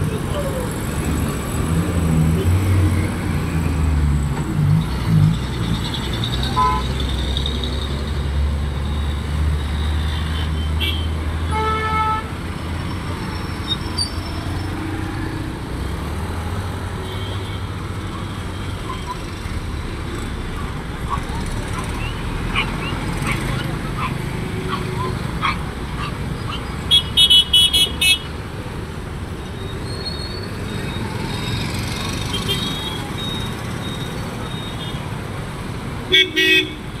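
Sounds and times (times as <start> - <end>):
motorbikes and cars passing: 0.0 - 37.0
car horn beeps: 6.5 - 6.9, 26.9 - 28.3, 32.3 - 35.0, 36.1 - 36.8.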